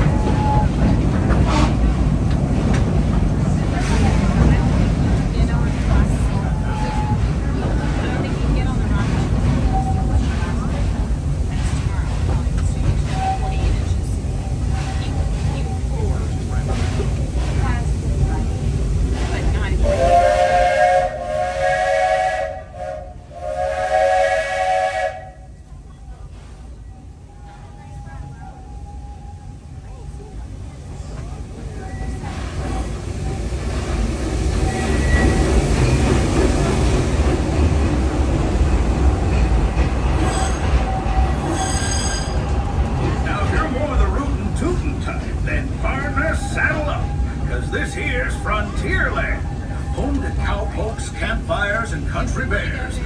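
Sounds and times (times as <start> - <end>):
low rumble of moving train: 0.0 - 53.0
steam locomotive whistle blasts: 19.8 - 25.6
high-pitched wheel squeals: 34.6 - 35.5, 40.2 - 42.4.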